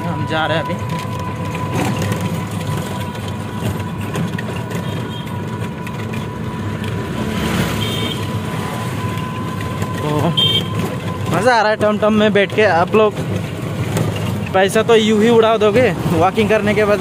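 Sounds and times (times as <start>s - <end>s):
auto-rickshaw engine and road noise: 0.0s - 17.0s.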